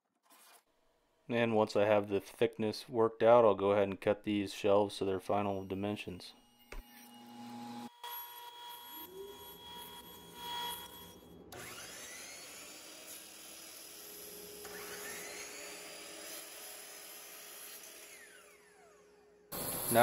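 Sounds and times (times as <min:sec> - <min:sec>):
table saw cutting: 0:05.0 - 0:20.0
miter saw motor whining: 0:05.3 - 0:20.0.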